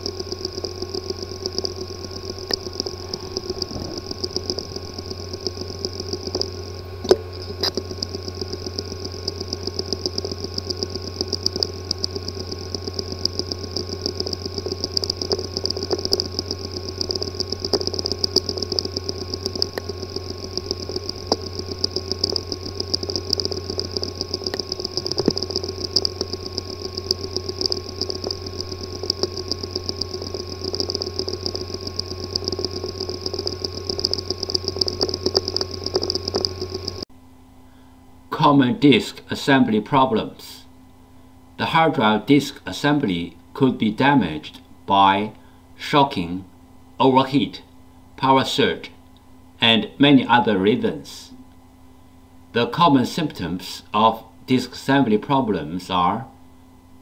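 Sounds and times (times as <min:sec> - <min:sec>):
hard drive loud clicks: 0:00.0 - 0:37.0
hard drive rapid ticking: 0:00.0 - 0:37.1
hard drive hum and whine: 0:00.0 - 0:57.0.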